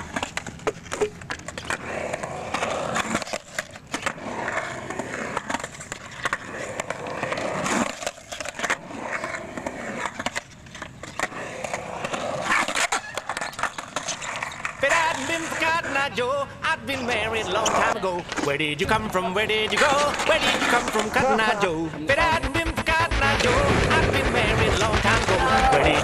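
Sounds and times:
skateboard clacking on concrete: 0.0 - 16.0, 17.6 - 21.4
skateboard wheels rolling on concrete: 0.0 - 26.0.

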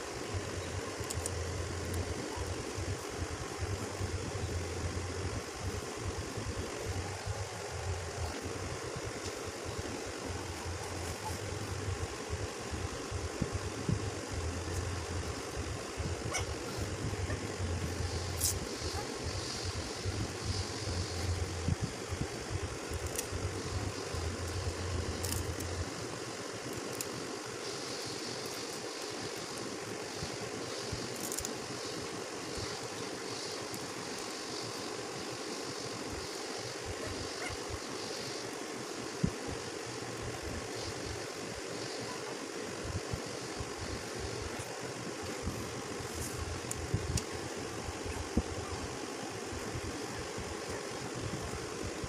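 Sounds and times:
motor hum with hiss: 0.0 - 52.0
steady machine-like drone: 0.0 - 52.0.

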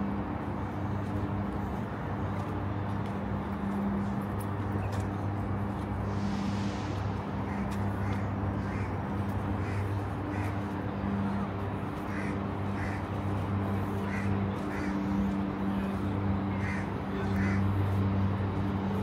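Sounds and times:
low mechanical hum: 0.0 - 19.0
crows cawing: 7.5 - 11.2, 11.9 - 13.4, 14.0 - 15.3, 16.5 - 17.7.

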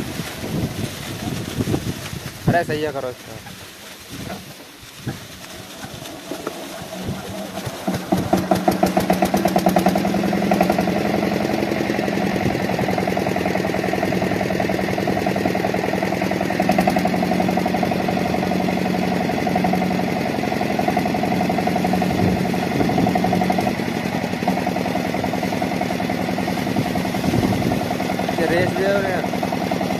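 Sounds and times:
diesel engine starting and running: 0.0 - 29.9.

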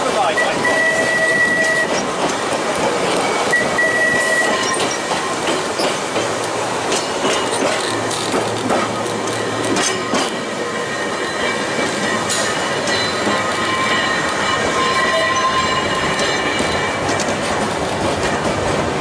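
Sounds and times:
tram rolling along track: 0.0 - 19.0
wheels clicking over rails: 1.1 - 10.4
high wheel squeal: 9.4 - 17.2.

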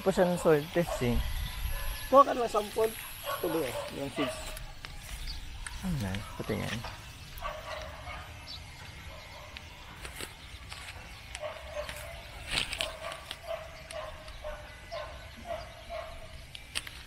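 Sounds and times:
dog barking: 0.8 - 2.2, 2.8 - 4.8, 7.4 - 8.4, 11.4 - 16.4.

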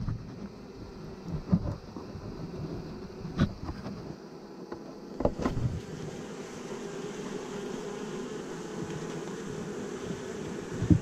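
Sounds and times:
bees buzzing: 0.0 - 11.0.

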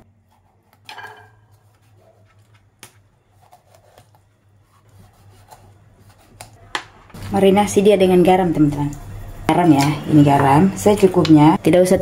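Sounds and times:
low steady hum: 0.0 - 12.0
knife slicing fish skin: 3.3 - 6.6.

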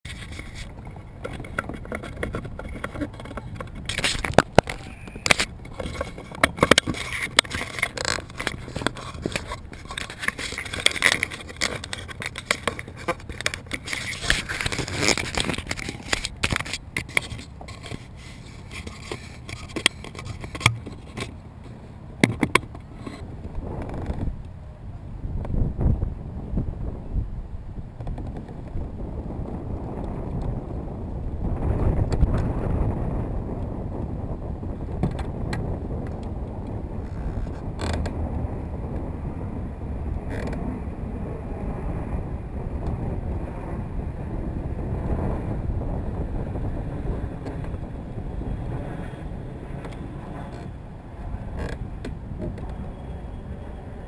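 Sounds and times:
gear scraping and knocking: 0.1 - 24.4, 37.0 - 38.2, 40.2 - 40.8, 48.7 - 53.0.

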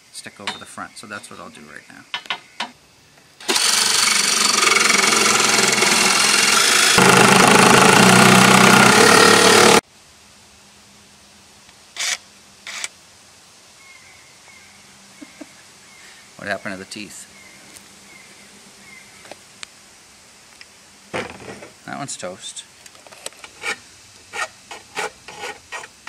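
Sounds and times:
jigsaw cutting aluminium: 3.4 - 9.8.

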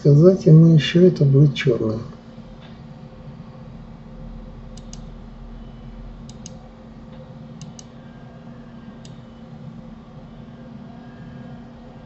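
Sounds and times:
low hum: 0.0 - 12.0
computer mouse clicking: 4.7 - 5.1, 6.2 - 6.6, 7.6 - 8.0, 9.0 - 9.2.

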